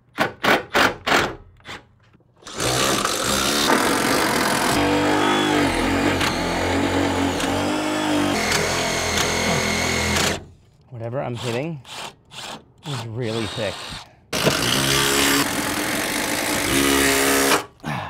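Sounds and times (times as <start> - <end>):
impact driver hammering screw: 11.9 - 17.7.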